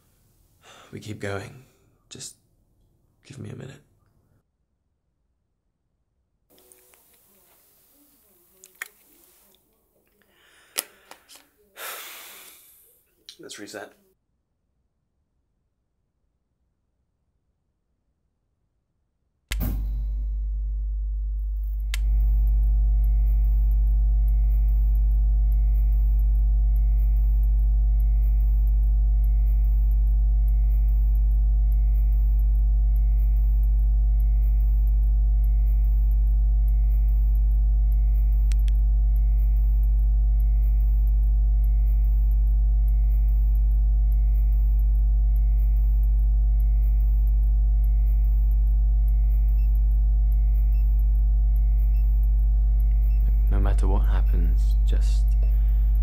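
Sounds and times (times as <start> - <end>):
click: 8.6 - 9.0, 21.6 - 22.5, 24.2 - 51.2
low electrical hum: 19.5 - 56.0.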